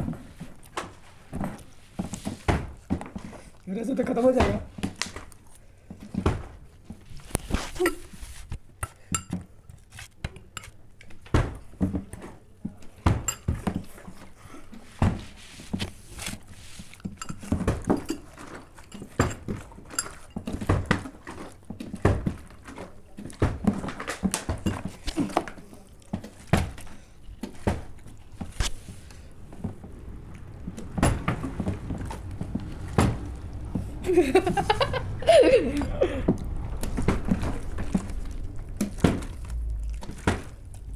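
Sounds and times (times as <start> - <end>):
fork clinking against glass bowl: 17.1 - 18.3.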